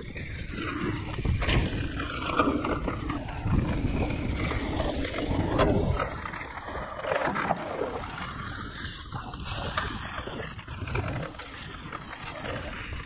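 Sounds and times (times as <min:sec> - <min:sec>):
bike knocking and rattling: 0:00.0 - 0:07.4
tyre rumble: 0:00.0 - 0:13.0
wind buffeting microphone: 0:00.0 - 0:13.0.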